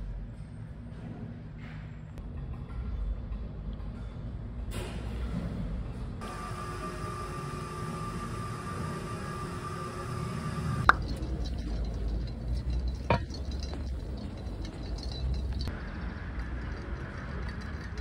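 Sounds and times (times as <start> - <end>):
outdoor background rumble: 0.0 - 18.0
faint steady whine: 6.2 - 16.8.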